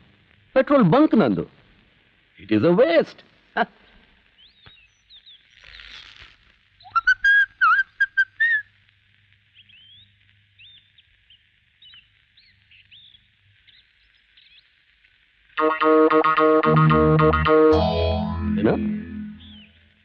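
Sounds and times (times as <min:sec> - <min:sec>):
faint bird chirps: 0:03.8 - 0:06.0, 0:06.7 - 0:08.7, 0:09.4 - 0:14.9, 0:18.9 - 0:19.9
short whistled notes: 0:15.6 - 0:19.8.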